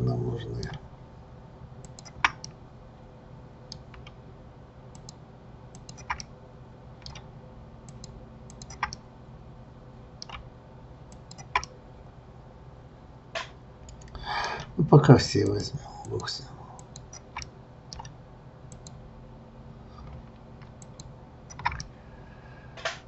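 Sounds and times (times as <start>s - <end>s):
faint steady hum: 0.0s - 23.0s
mouse and keyboard clicking: 1.8s - 2.5s, 5.8s - 6.3s, 7.0s - 7.3s, 7.9s - 9.0s, 10.2s - 10.4s, 11.1s - 11.7s, 13.8s - 14.2s, 16.0s - 18.1s, 18.7s - 19.0s, 20.0s - 21.9s.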